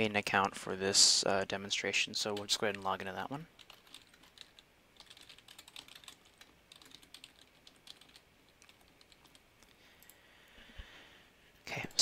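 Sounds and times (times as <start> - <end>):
faint keyboard typing: 2.2 - 10.2.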